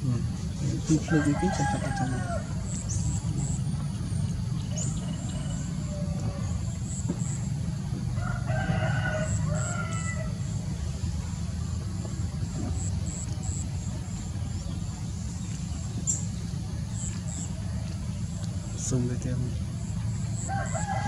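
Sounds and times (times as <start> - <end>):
rooster crowing: 0.9 - 2.6, 4.8 - 6.8, 8.1 - 10.6, 20.4 - 21.0.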